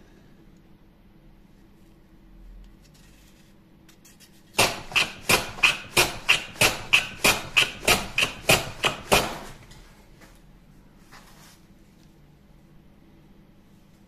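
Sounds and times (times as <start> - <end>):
hand plane cutting strokes: 4.7 - 9.5.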